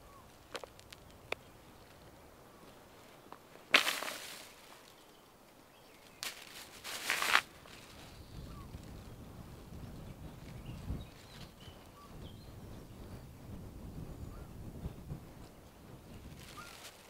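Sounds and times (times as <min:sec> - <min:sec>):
plastic bag crinkling: 0:06.2 - 0:07.8.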